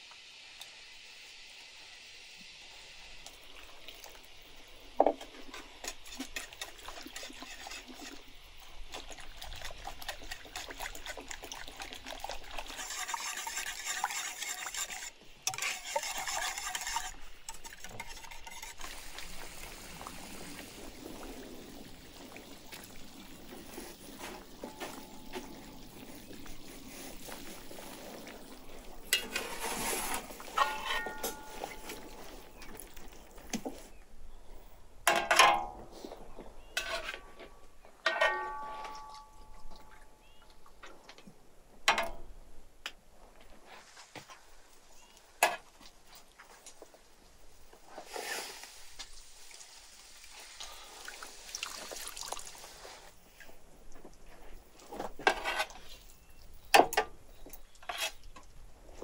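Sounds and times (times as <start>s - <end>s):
whisk scraping wooden bowl: 6.0s - 8.2s, 9.5s - 19.4s
metal skimmer clattering on pan: 38.1s - 39.2s.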